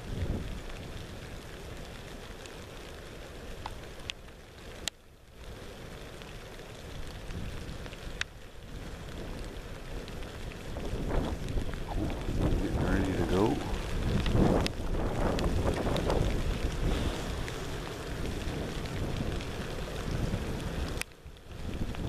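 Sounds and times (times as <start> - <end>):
wind noise on microphone: 0.0 - 1.9, 6.9 - 22.0.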